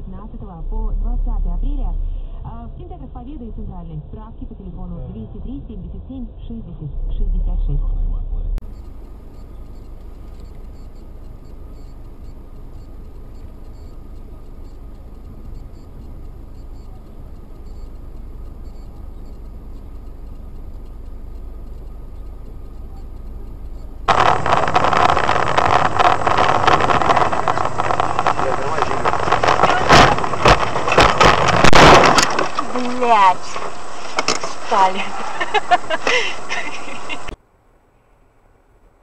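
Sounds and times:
road and engine noise inside car: 0.0 - 39.0
loud rough noise: 24.0 - 37.4.

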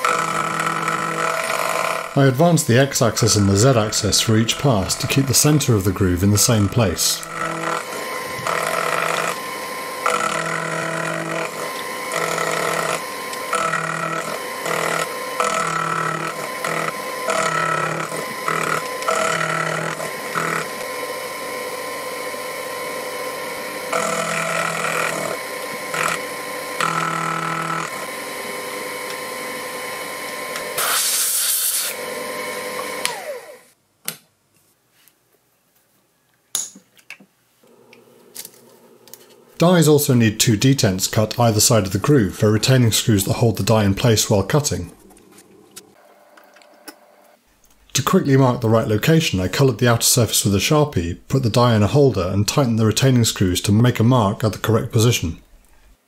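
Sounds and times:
milling machine cutting steel: 0.0 - 33.6.

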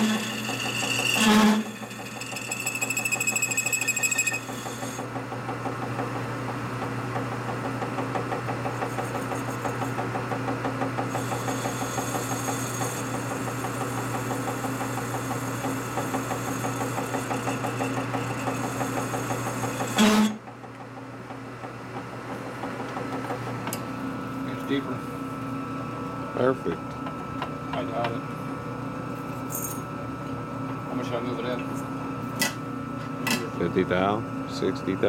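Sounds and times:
machine tool running: 0.0 - 5.1, 11.0 - 20.3.

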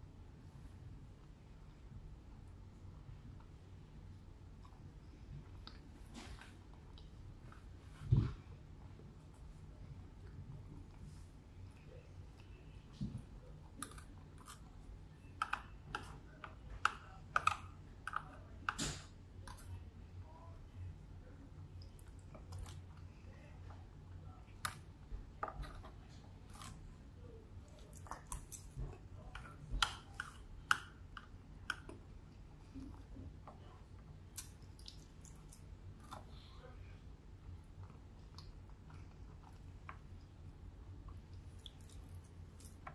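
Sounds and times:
faint low hum: 0.0 - 42.9
chewing mouth noises: 34.3 - 36.4.

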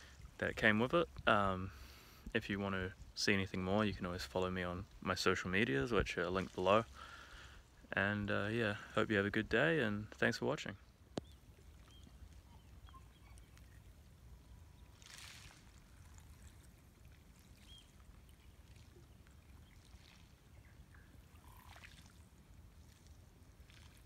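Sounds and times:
ripples lapping on shingle: 13.4 - 20.9.

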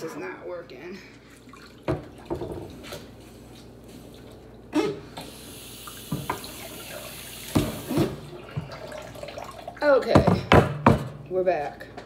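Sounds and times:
tap water running into sink: 5.2 - 10.3.

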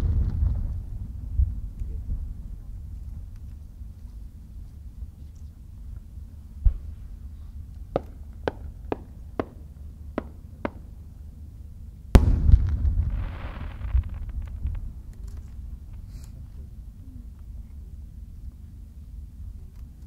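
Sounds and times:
firework boom with rumble: 0.0 - 2.8, 6.6 - 7.2, 12.1 - 16.2
firework pops: 12.2 - 16.3.

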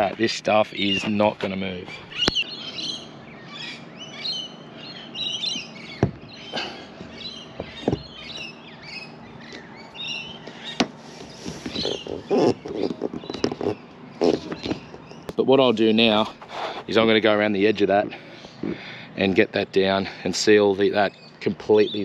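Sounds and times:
birds chirping: 0.0 - 22.0
sharp knocks: 6.0 - 6.3, 7.0 - 8.2.

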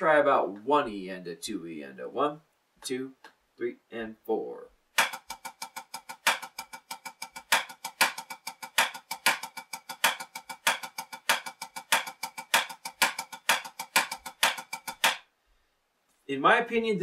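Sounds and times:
drumsticks on drum pad: 5.0 - 15.3.

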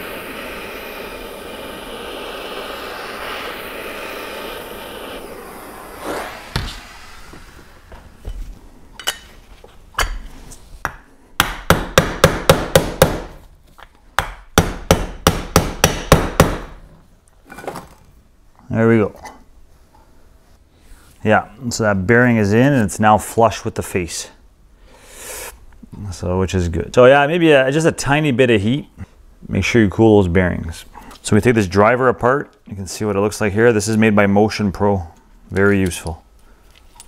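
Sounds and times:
propane torch hissing: 0.0 - 8.3.

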